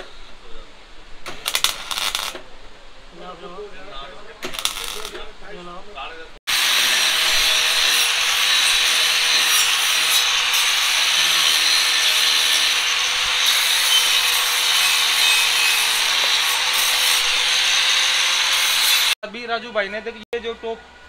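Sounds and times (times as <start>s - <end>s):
power tool grinding metal: 6.5s - 19.2s.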